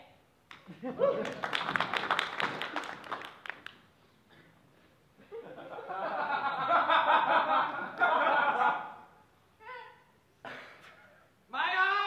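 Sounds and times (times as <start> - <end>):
hand claps: 0.5 - 3.9.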